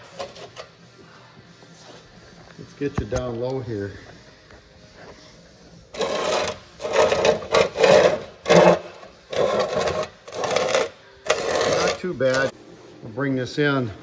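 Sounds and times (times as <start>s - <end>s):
metal scraping on sandpaper: 6.0s - 12.5s.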